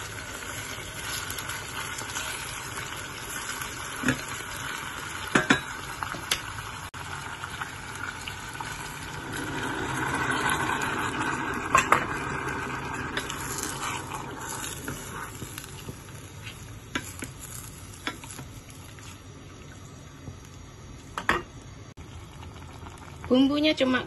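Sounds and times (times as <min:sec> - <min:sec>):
water pouring into saucepan: 0:00.0 - 0:15.4, 0:22.0 - 0:23.4
wooden spoon stirring pan: 0:13.2 - 0:19.2.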